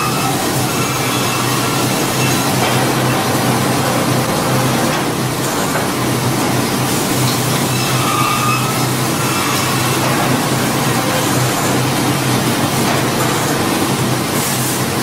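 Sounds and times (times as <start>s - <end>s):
band saw and conveyor drone: 0.0s - 15.0s.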